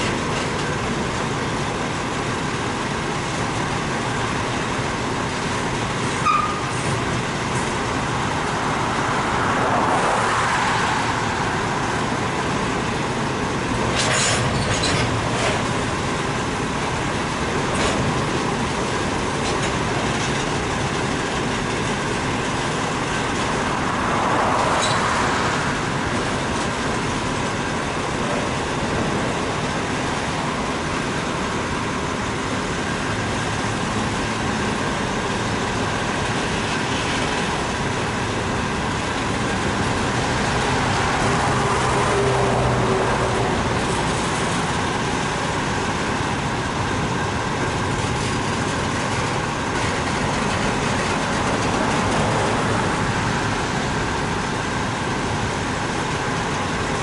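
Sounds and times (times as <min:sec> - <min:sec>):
steel wheels rolling on rail: 0:00.0 - 0:57.0.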